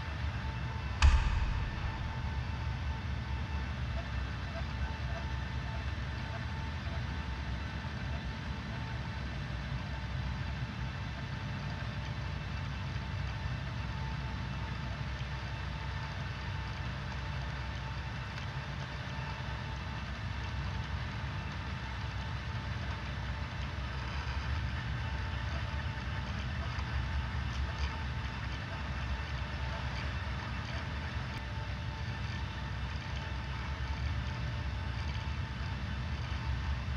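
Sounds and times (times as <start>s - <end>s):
low mechanical rumble: 0.0s - 4.6s.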